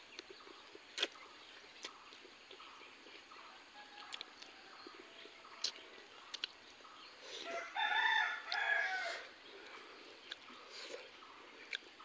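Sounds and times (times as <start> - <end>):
chewing clicks: 0.1 - 3.2, 4.0 - 4.5, 5.5 - 6.6, 10.2 - 11.9
rooster crowing: 3.7 - 5.4, 7.4 - 9.4.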